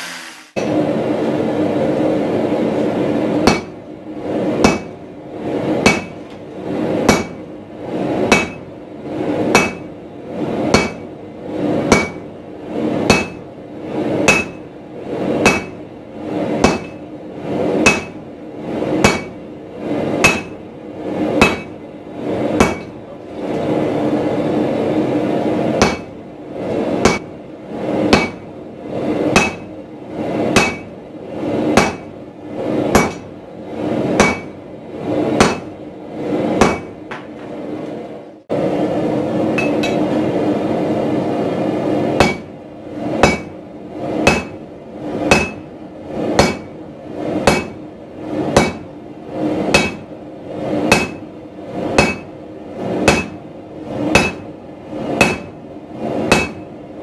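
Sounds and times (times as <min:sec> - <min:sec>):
steady rushing noise: 0:00.0 - 0:57.0
hammer striking steel on anvil: 0:03.4 - 0:03.8, 0:04.6 - 0:05.0, 0:05.8 - 0:06.2, 0:07.0 - 0:07.4, 0:08.3 - 0:08.7, 0:09.5 - 0:09.9, 0:10.7 - 0:11.1, 0:11.9 - 0:12.3, 0:13.1 - 0:13.4, 0:14.2 - 0:14.7, 0:15.4 - 0:15.8, 0:16.6 - 0:17.0, 0:17.8 - 0:18.2, 0:19.0 - 0:19.4, 0:20.2 - 0:20.6, 0:21.4 - 0:21.8, 0:22.6 - 0:23.0, 0:25.8 - 0:26.1, 0:27.0 - 0:27.3, 0:28.1 - 0:28.5, 0:29.3 - 0:29.7, 0:30.6 - 0:30.9, 0:31.8 - 0:32.1, 0:32.9 - 0:33.3, 0:34.2 - 0:34.6, 0:35.4 - 0:35.7, 0:36.6 - 0:37.3, 0:39.6 - 0:40.1, 0:42.2 - 0:42.5, 0:43.2 - 0:43.6, 0:44.2 - 0:44.6, 0:45.2 - 0:45.7, 0:46.4 - 0:46.7, 0:47.4 - 0:47.8, 0:48.6 - 0:48.9, 0:49.7 - 0:50.1, 0:50.9 - 0:51.3, 0:52.0 - 0:52.3, 0:53.0 - 0:53.4, 0:54.1 - 0:54.5, 0:55.2 - 0:55.6, 0:56.3 - 0:56.7.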